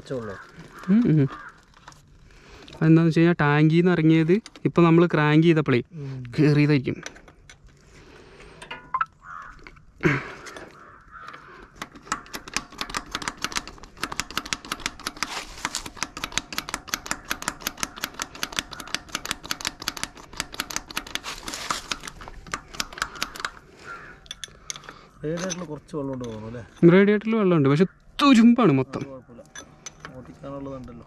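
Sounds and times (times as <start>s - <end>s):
metallic clicking of hand tools: 10.5s - 26.9s.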